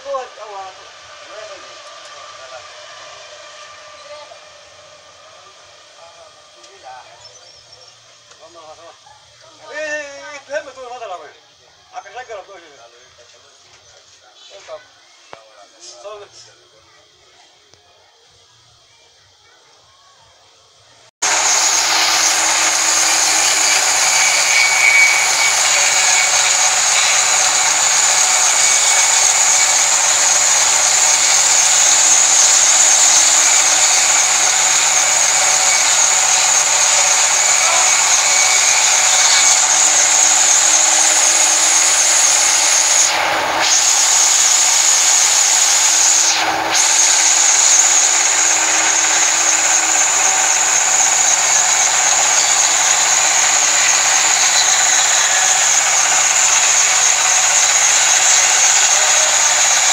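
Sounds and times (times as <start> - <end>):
band saw ripping through log: 21.2 - 59.9.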